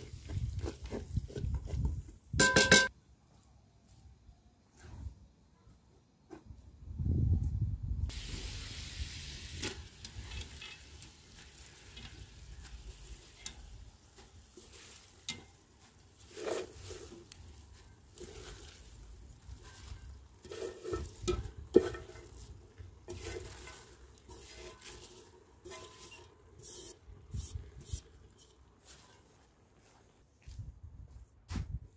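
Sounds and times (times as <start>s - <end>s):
metal bowl knocking on cauldron: 2.4s - 2.9s
sauce sizzling over a fire: 8.1s - 28.1s
cabbage rustling: 8.1s - 30.2s.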